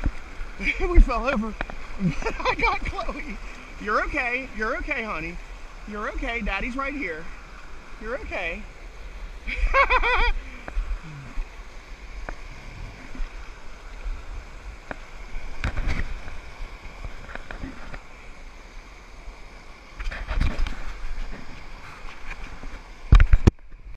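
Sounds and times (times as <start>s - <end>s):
whitewater rushing over weir: 0.0s - 23.9s
knocks and splashes: 14.8s - 18.1s.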